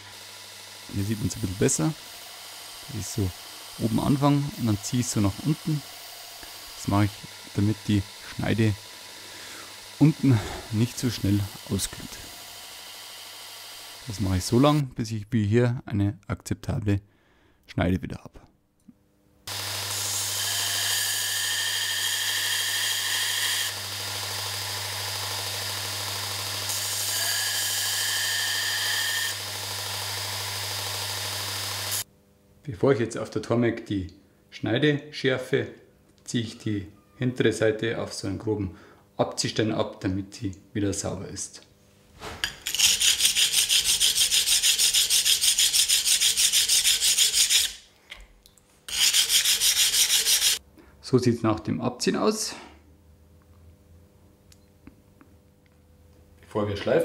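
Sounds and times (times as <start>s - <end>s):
belt sander motor hum: 0.0s - 14.8s, 19.5s - 32.0s
chisel grinding on sander belt: 19.5s - 32.0s, 42.6s - 47.8s, 48.9s - 50.6s
chisel scraping on honing stone: 42.4s - 47.8s, 48.9s - 50.6s.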